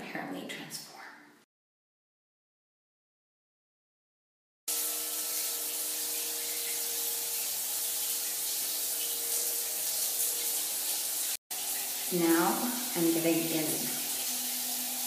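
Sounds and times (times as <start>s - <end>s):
shower water spray hissing: 4.7s - 15.0s.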